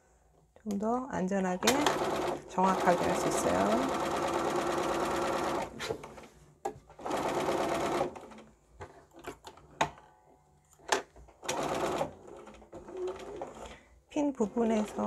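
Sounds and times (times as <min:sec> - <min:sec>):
sewing machine stitching: 0:01.6 - 0:06.3, 0:07.0 - 0:08.5, 0:10.9 - 0:13.8, 0:14.4 - 0:15.0.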